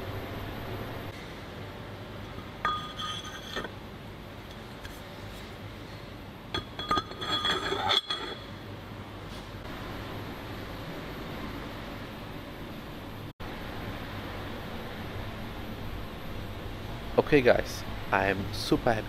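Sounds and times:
steady background hum: 0.0s - 19.0s
ringing metal clink: 2.6s - 3.7s, 6.6s - 8.5s
metal clinks and rattles: 6.6s - 8.5s.

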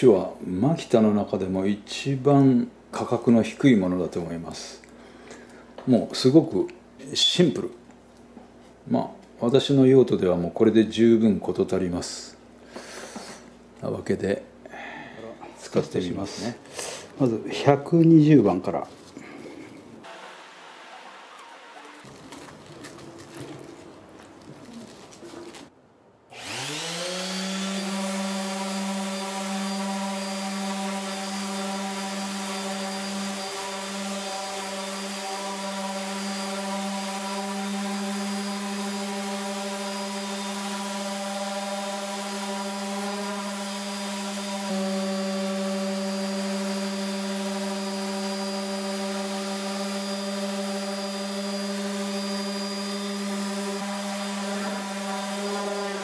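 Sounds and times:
orbital sander sanding wood: 20.0s - 25.7s, 26.4s - 56.0s.

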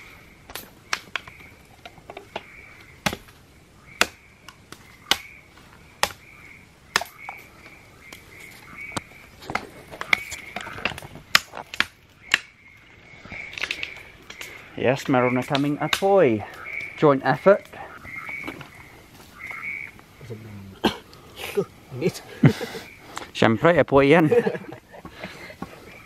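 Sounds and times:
campfire wood crackling: 0.0s - 26.0s
high-pitched animal chorus: 12.1s - 23.5s.

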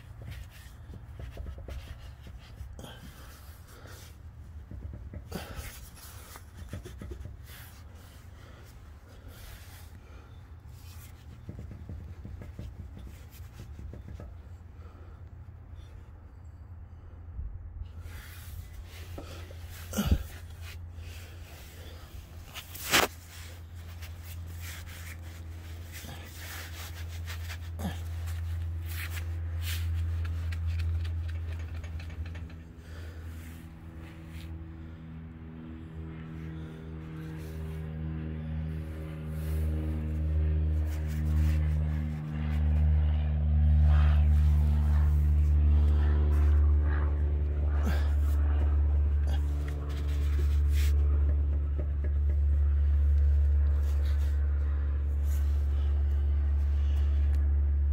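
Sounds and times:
steady low hum: 0.0s - 57.9s
slow ambient drone music: 32.1s - 51.3s.

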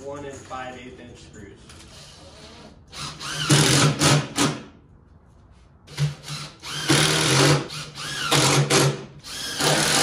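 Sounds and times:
cordless drill motor whining: 6.2s - 8.6s, 9.2s - 10.0s.

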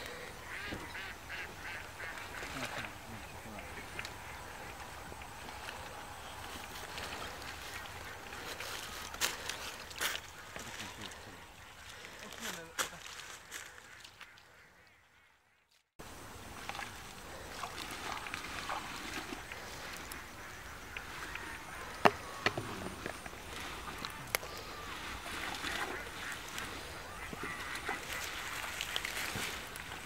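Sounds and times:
net rustling and splashing in water: 16.6s - 20.5s, 23.4s - 30.0s.

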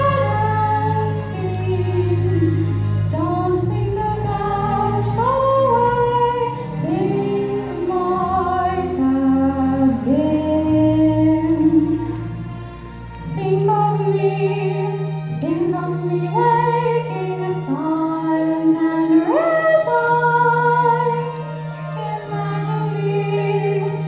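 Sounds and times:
young woman singing: 13.2s - 21.4s.

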